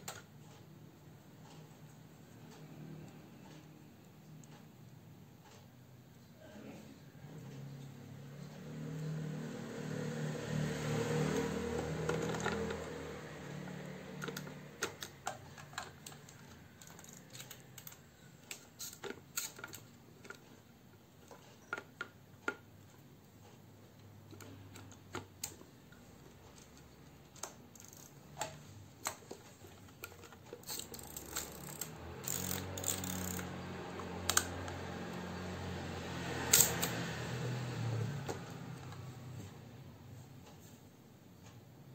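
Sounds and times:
camera mechanism clicks: 0:30.6 - 0:33.5, 0:36.5 - 0:36.9.

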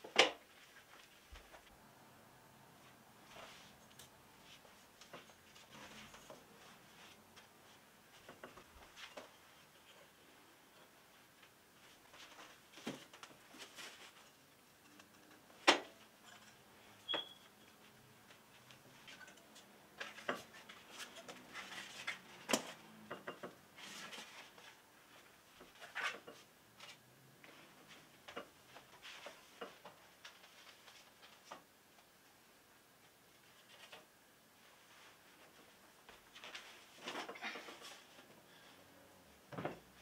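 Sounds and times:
handling and rustling: 0:10.8 - 0:14.9.

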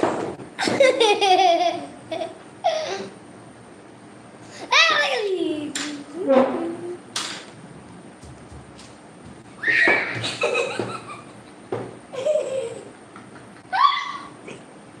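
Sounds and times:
children laughing and squealing: 0:09.6 - 0:11.3, 0:13.6 - 0:14.4.

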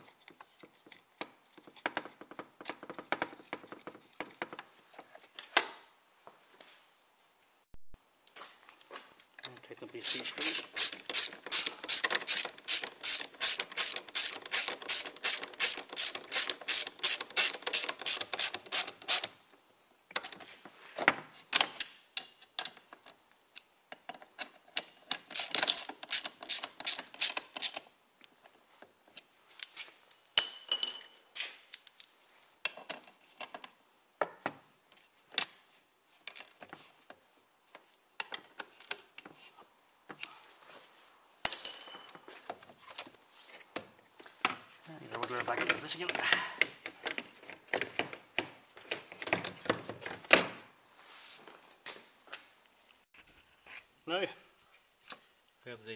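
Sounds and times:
metal tools clinking: 0:30.4 - 0:31.4, 0:41.5 - 0:42.3.

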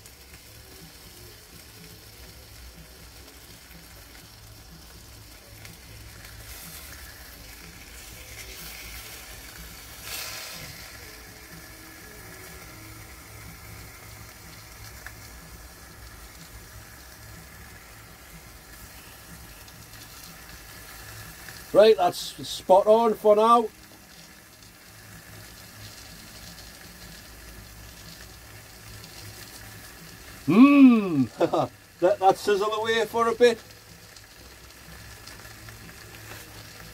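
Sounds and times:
bacon sizzling in a pan: 0:00.0 - 0:36.9.

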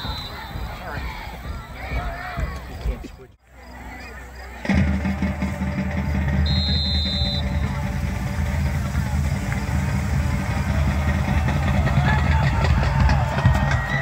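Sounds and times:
referee's whistle blast: 0:00.0 - 0:00.8, 0:06.3 - 0:08.2
crowd chatter: 0:00.0 - 0:14.0
low rumble: 0:05.4 - 0:14.0.

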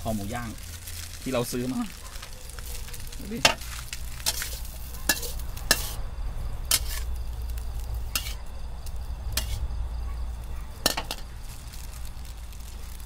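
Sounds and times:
rice sizzling in a pan: 0:00.0 - 0:13.0
metal spatula scraping a pan: 0:03.4 - 0:06.0, 0:06.6 - 0:07.2, 0:08.1 - 0:08.5, 0:09.3 - 0:09.7, 0:10.8 - 0:11.3.

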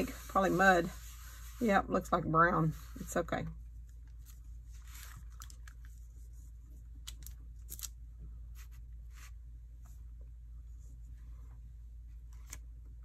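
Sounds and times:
soft rustles and scuffs: 0:00.0 - 0:03.5.

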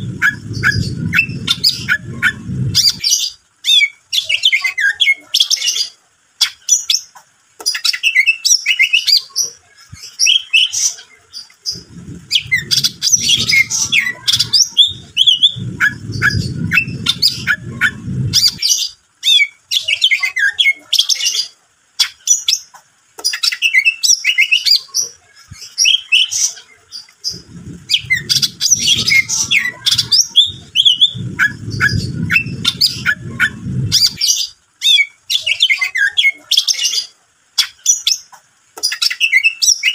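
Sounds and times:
low rumbling noise: 0:00.0 - 0:03.4, 0:11.4 - 0:19.1, 0:27.1 - 0:34.6
bird chirping and trilling: 0:00.0 - 0:39.9.

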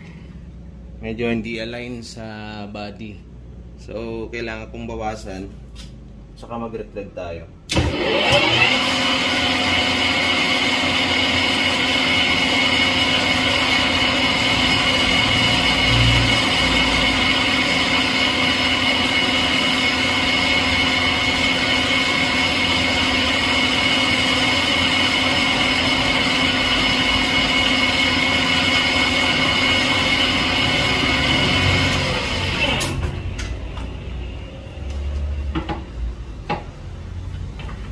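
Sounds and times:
metal lathe running: 0:07.7 - 0:33.9.

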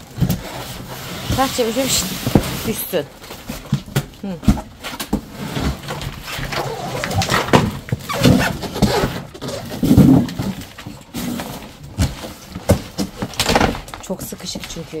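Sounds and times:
cardboard box scraping on tiles: 0:00.1 - 0:03.8, 0:04.8 - 0:13.4.

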